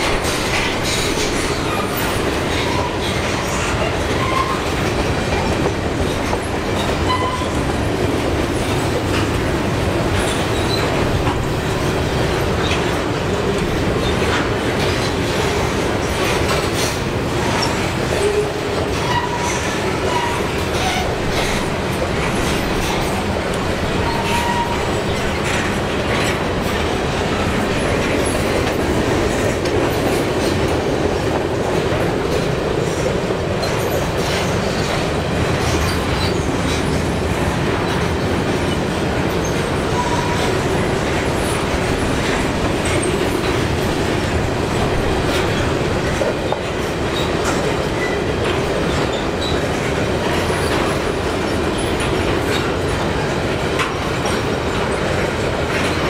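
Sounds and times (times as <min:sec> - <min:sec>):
wheels clicking over rail joints: 0:00.0 - 0:56.0
wheel squeals: 0:06.8 - 0:07.6, 0:10.2 - 0:11.0, 0:24.0 - 0:25.6.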